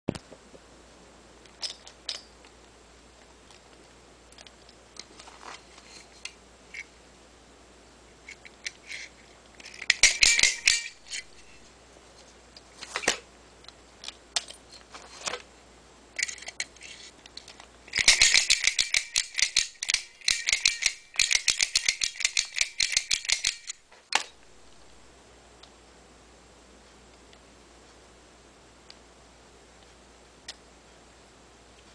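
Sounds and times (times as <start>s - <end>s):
pick gun clicking on lock: 18.0s - 24.3s.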